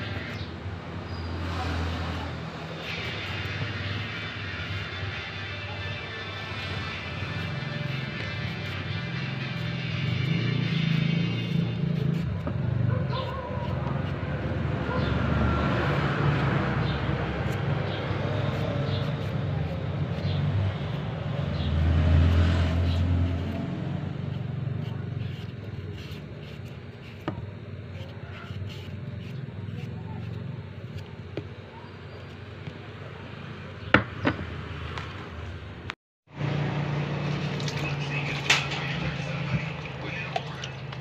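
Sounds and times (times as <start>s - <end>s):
knife peeling carrot: 1.6s - 31.4s.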